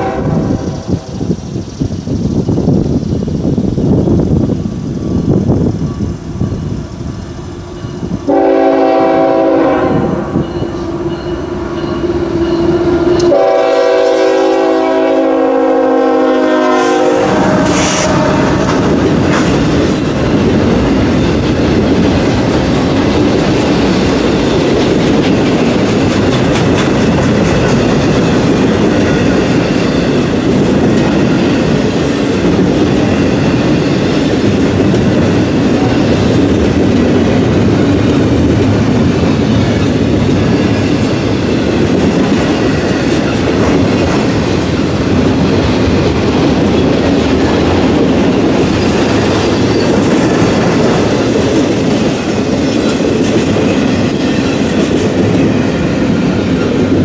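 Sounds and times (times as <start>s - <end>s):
locomotive air horn: 0.0s - 1.1s, 8.3s - 10.4s, 12.4s - 18.8s
train rolling past: 0.0s - 57.0s.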